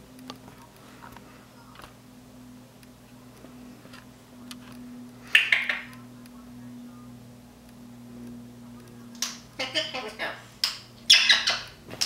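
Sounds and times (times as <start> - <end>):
low hum: 0.0 - 12.0
parrot clicking: 5.3 - 6.4.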